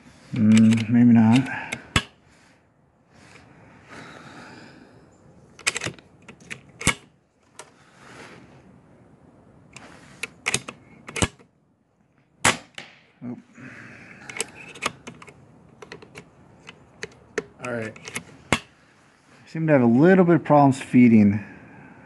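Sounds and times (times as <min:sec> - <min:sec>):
air rifle metallic clicks: 0:00.3 - 0:02.2, 0:05.5 - 0:07.8, 0:09.7 - 0:11.5, 0:14.2 - 0:18.7.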